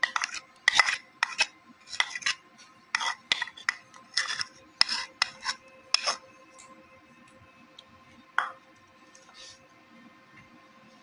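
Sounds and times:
spatula scraping plastic tub: 0.0s - 6.2s.

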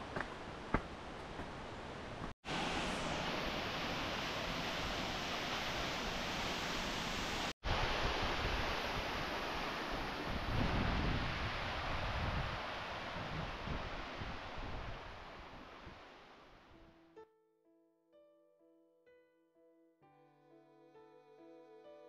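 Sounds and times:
waterfall rushing: 2.5s - 13.1s.

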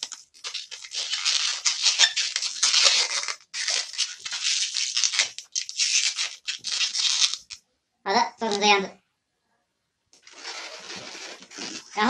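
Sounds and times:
balloon rubbing while twisted: 0.0s - 7.6s, 10.2s - 12.0s.

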